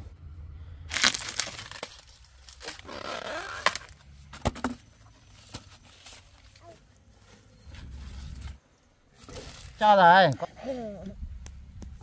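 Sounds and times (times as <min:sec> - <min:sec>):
rustling tearing noises: 0:00.9 - 0:04.0
sharp snaps and clicks: 0:11.3 - 0:12.0.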